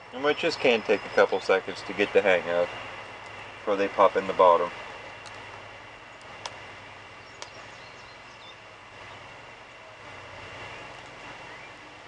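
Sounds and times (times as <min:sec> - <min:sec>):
low background hum: 0:00.0 - 0:12.0
faint clicks: 0:07.4 - 0:07.6.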